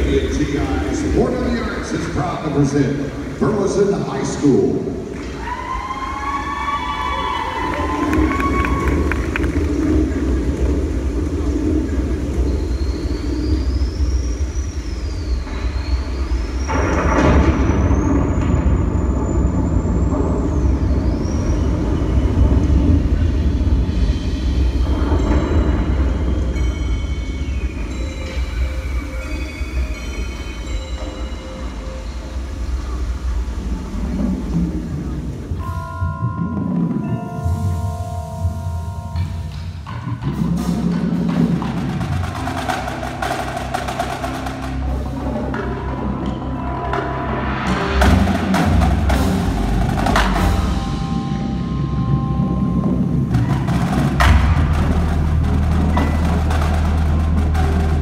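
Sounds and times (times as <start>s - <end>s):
low rumbling soundscape over speakers: 0.0s - 58.0s
rush of noise: 0.0s - 58.0s
thin whistling tone: 12.4s - 16.7s
faint sustained high tones: 23.8s - 34.2s, 35.5s - 40.0s, 49.4s - 53.4s.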